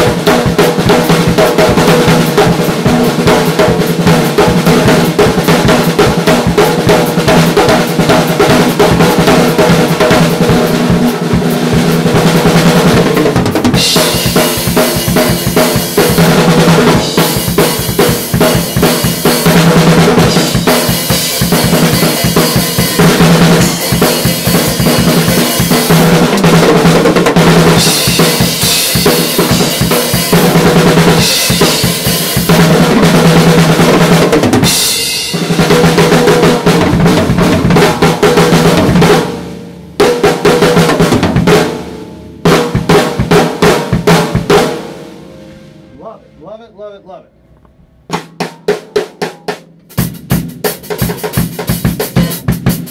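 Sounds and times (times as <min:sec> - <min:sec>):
cymbals: 0:00.0 - 0:37.1
drum kit groove: 0:00.0 - 0:46.7, 0:48.1 - 0:52.9.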